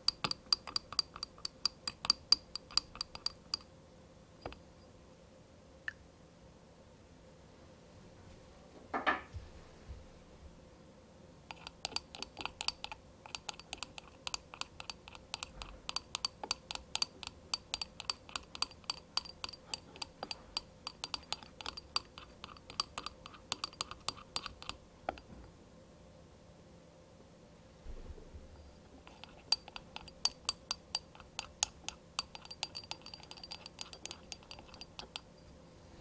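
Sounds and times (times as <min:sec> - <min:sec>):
whisk clicking against bowl: 0:00.0 - 0:03.7, 0:11.5 - 0:25.3, 0:29.0 - 0:35.4
whisk scraping bowl: 0:11.5 - 0:25.3, 0:29.0 - 0:35.4.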